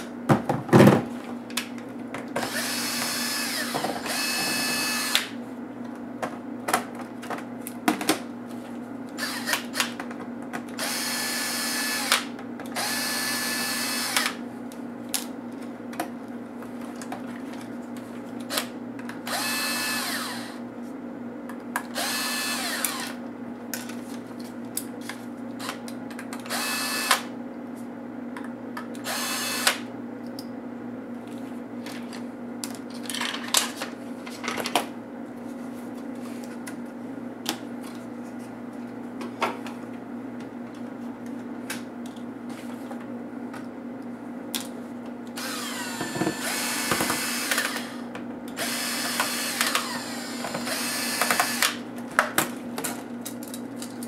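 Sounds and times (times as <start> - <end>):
electric screwdriver motor whine: 2.4 - 5.3, 9.2 - 9.9, 10.8 - 14.4, 19.3 - 20.6, 22.0 - 23.2, 26.5 - 27.3, 29.0 - 29.8, 45.4 - 48.0, 48.6 - 51.8.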